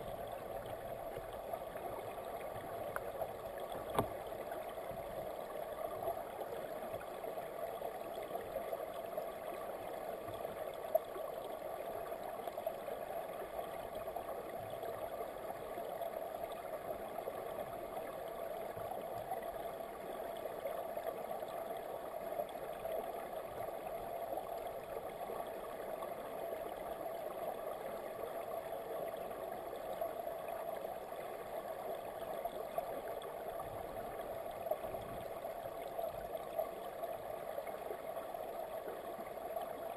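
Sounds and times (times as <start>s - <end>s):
muffled underwater river rush: 0.0s - 20.7s, 23.4s - 39.9s.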